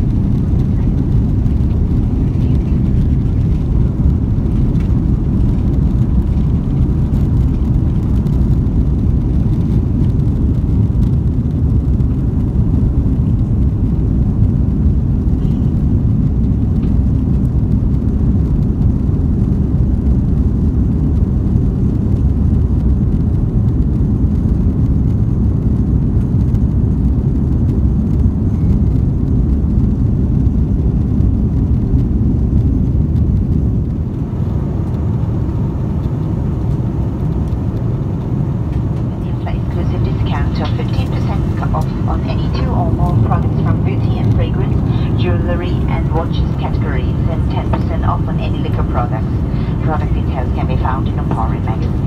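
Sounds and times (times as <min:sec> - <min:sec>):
jet engines roaring: 0:00.0 - 0:52.0
rushing air: 0:49.2 - 0:49.9.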